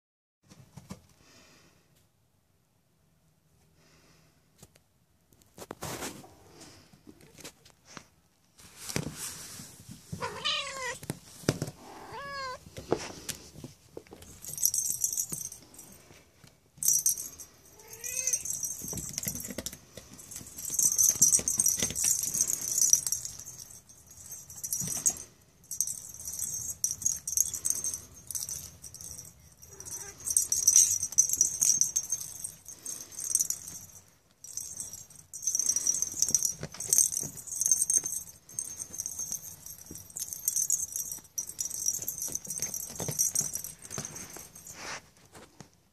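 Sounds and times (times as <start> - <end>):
kitten meowing: 10.2 - 11.0, 11.9 - 12.6
bell in cat ball jingling: 14.2 - 16.2, 16.8 - 45.0.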